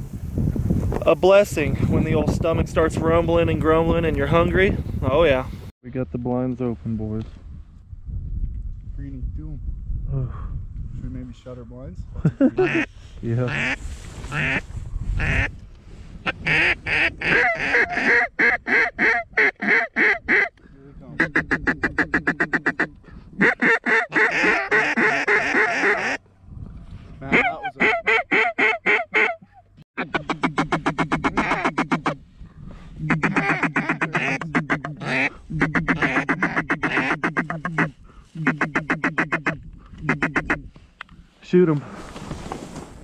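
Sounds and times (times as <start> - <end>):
duck call raspy quacks: 12.6 - 12.9, 13.5 - 14.6, 15.2 - 15.5, 16.4 - 26.2, 27.3 - 32.2, 33.0 - 40.7.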